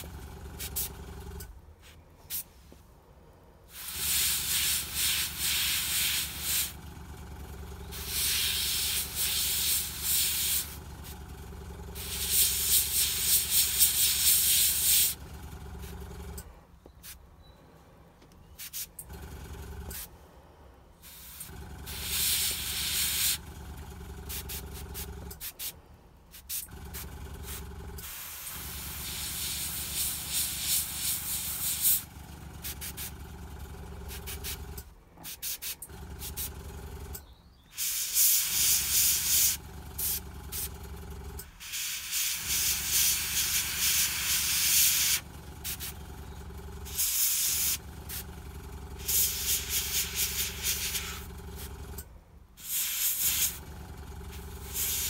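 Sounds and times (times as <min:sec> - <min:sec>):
air compressor humming: 0:00.0 - 0:01.6, 0:03.7 - 0:17.2, 0:18.5 - 0:55.0
airbrush spraying hiss: 0:03.7 - 0:06.7, 0:07.9 - 0:11.2, 0:12.0 - 0:15.2, 0:21.0 - 0:23.4, 0:24.3 - 0:26.7, 0:27.4 - 0:32.0, 0:37.8 - 0:40.7, 0:41.6 - 0:45.9, 0:46.9 - 0:48.2, 0:49.0 - 0:51.2, 0:52.6 - 0:53.6, 0:54.6 - 0:55.0.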